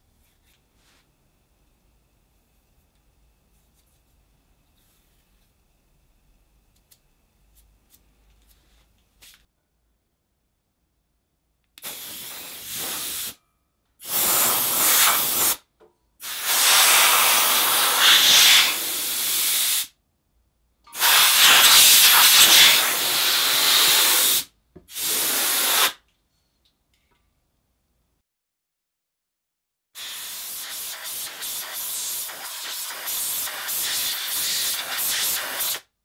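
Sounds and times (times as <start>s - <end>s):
air blow gun hissing: 11.8s - 13.4s, 14.0s - 15.6s, 16.2s - 19.9s, 21.0s - 26.0s, 30.0s - 35.9s.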